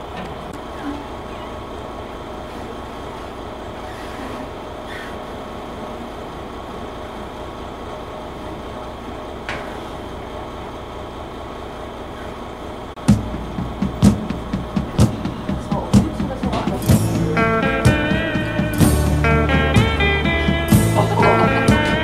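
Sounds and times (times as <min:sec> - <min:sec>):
engine drone: 0:00.0 - 0:22.0.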